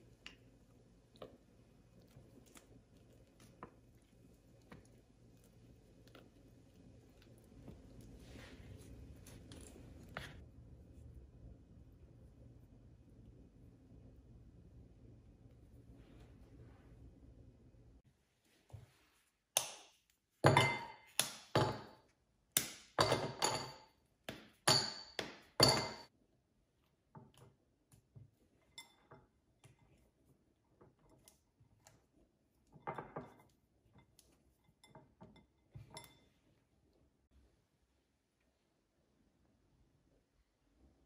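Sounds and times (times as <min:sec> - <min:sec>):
kitchenware clinking and knocking: 0:20.4 - 0:22.0, 0:22.9 - 0:23.9, 0:24.5 - 0:26.1.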